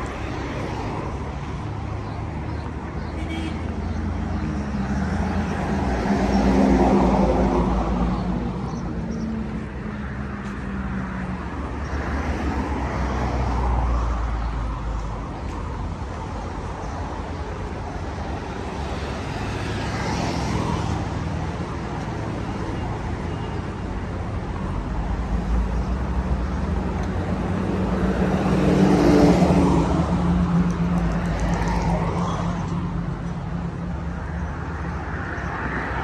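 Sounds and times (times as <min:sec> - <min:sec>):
cars passing: 0:00.0 - 0:36.0.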